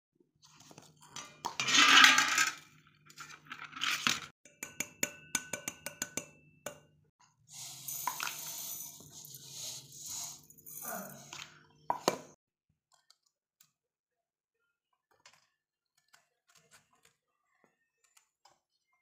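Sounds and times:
steel utensils clinking and scraping: 1.1 - 6.3, 7.5 - 11.6
spice poured into steel jar: 7.5 - 11.4.

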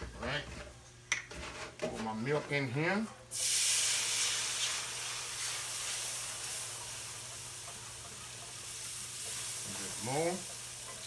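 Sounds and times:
milk sizzling in hot pan: 3.3 - 11.0.

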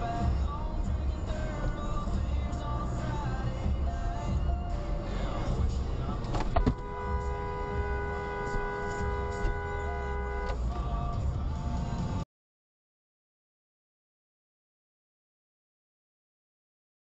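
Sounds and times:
car driving rumble: 0.0 - 12.2
car horn two-note blast: 6.6 - 10.7.

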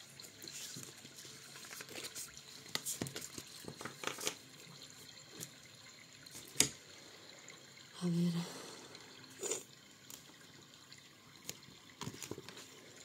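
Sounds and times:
cards shuffled by hand: 0.4 - 4.4.

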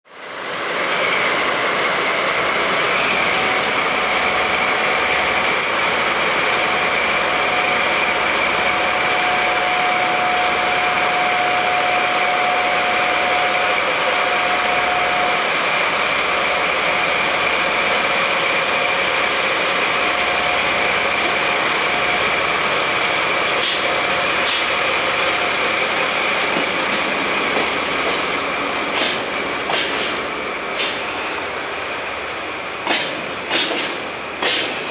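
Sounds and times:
diesel locomotive engine running: 0.1 - 34.9
train wheels clacking: 23.4 - 31.4, 32.7 - 34.9.

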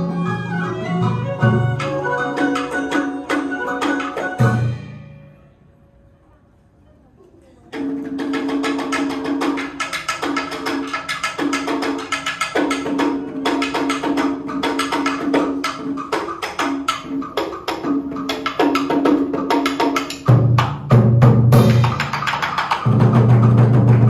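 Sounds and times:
deep drum: 17.8 - 24.0.

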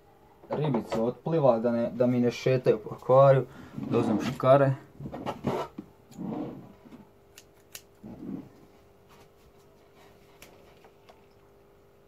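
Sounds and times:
scissors snipping: 7.3 - 8.0.

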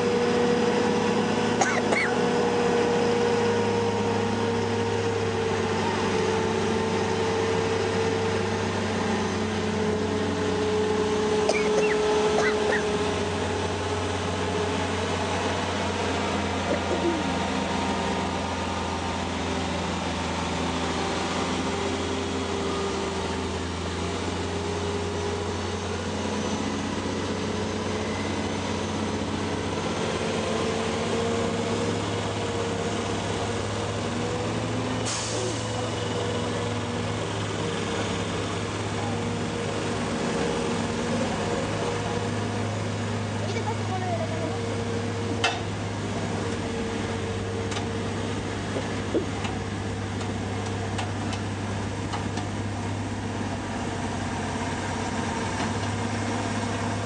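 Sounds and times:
diesel engine running: 0.0 - 57.0
air brake hiss: 35.0 - 35.7.

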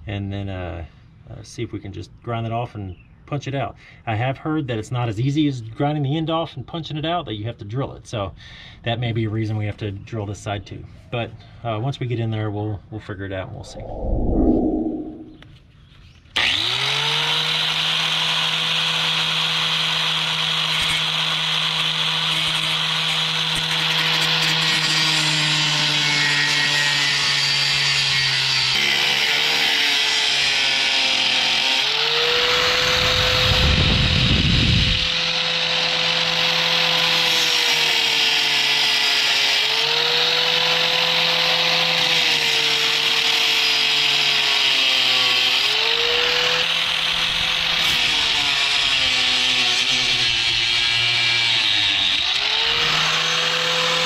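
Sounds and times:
low rumble: 13.4 - 15.4
angle grinder grinding metal: 16.4 - 54.0.

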